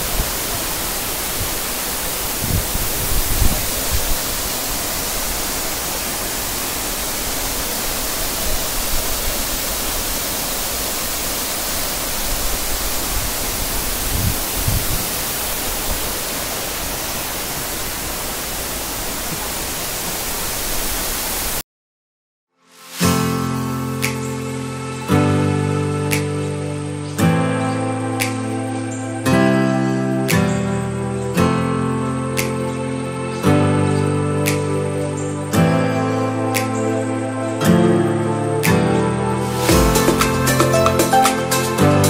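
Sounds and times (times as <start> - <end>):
waterfall roaring: 0.0 - 21.6, 39.3 - 42.0.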